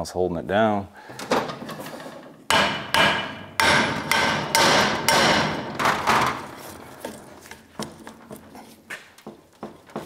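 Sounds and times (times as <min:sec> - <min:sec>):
mallet hitting steel: 0:02.5 - 0:07.2.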